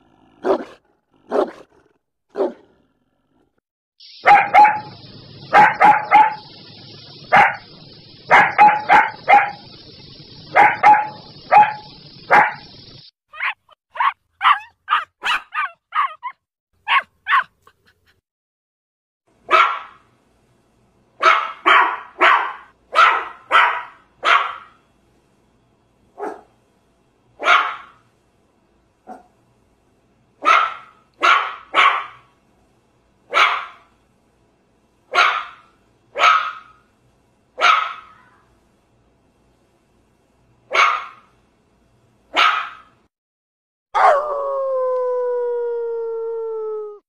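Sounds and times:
puppy barking: 0.4s - 1.6s, 2.3s - 2.6s, 4.2s - 4.9s, 5.5s - 6.5s, 8.3s - 9.6s, 10.5s - 12.6s, 13.3s - 17.8s, 19.5s - 20.0s, 21.2s - 24.8s, 26.2s - 26.5s, 27.4s - 28.0s, 29.1s - 29.3s, 30.4s - 32.2s, 33.3s - 33.8s, 35.1s - 35.6s, 36.2s - 36.8s, 37.6s - 38.4s, 40.7s - 41.3s, 42.3s - 42.9s
dog howling: 44.0s - 47.0s.

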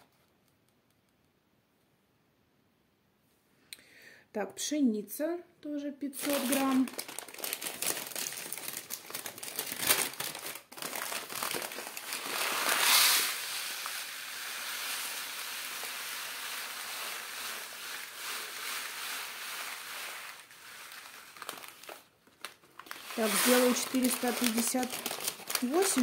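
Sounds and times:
paper bag crinkling: 6.2s - 26.0s
grain pouring into plastic tray: 11.6s - 22.1s, 22.8s - 26.0s.

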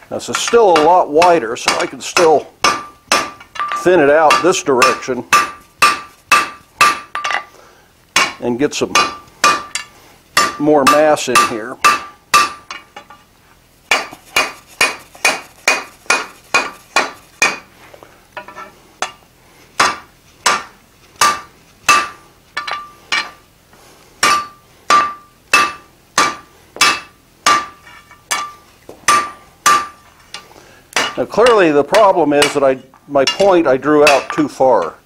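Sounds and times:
hammer striking hot metal on anvil: 0.4s - 7.4s, 8.2s - 12.8s, 13.9s - 17.7s, 19.8s - 23.4s, 24.2s - 30.0s, 30.9s - 31.2s, 32.4s - 32.6s, 33.2s - 34.4s.

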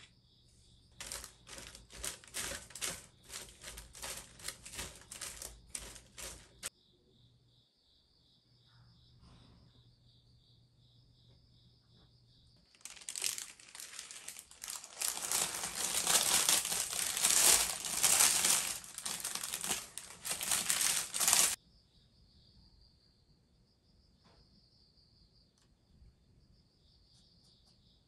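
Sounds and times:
crickets chirping: 0.0s - 28.0s
crinkling and rustling handling noise: 0.9s - 6.7s, 12.7s - 21.6s.

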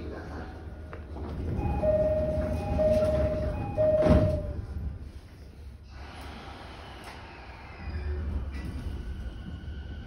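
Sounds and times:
two-note door chime: 1.6s - 4.6s
sliding doors thudding shut: 2.6s - 4.6s.

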